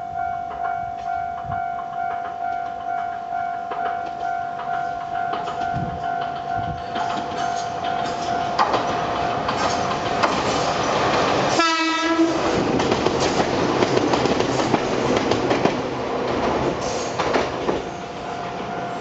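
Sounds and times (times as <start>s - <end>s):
train running noise: 0.0s - 19.0s
wheels clicking over rails: 1.4s - 17.9s
train horn blast: 11.6s - 12.6s.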